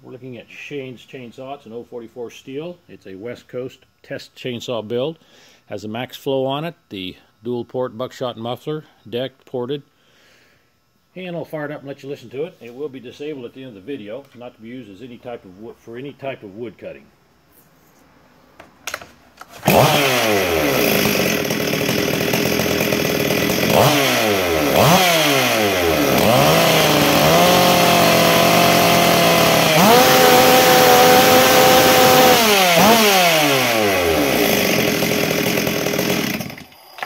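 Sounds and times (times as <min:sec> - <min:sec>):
chainsaw idling and revving: 0:19.6 - 0:36.8.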